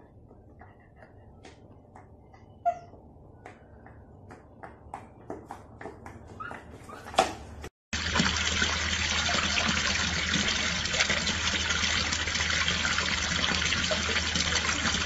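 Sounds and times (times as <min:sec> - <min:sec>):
water pouring and splashing: 0:08.0 - 0:15.0.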